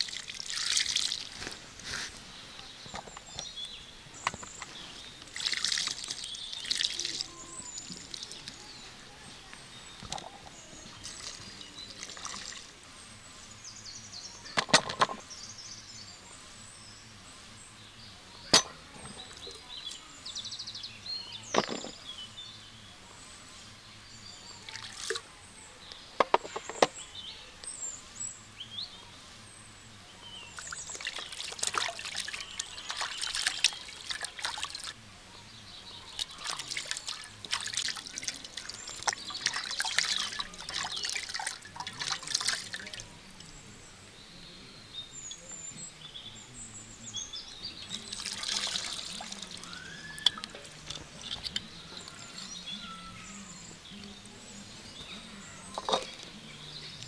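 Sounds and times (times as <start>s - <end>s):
liquid trickling and splashing: 0.0s - 1.8s, 4.2s - 8.7s, 10.0s - 12.8s, 24.6s - 25.2s, 30.5s - 35.0s, 35.9s - 43.6s, 47.8s - 52.3s
sharp clicks and knocks: 26.2s - 26.9s.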